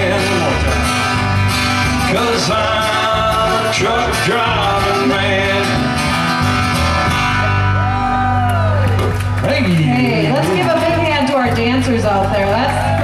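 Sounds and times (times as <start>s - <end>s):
strummed acoustic guitars: 0.0s - 13.0s
upright bass: 0.0s - 13.0s
person singing: 2.0s - 6.4s.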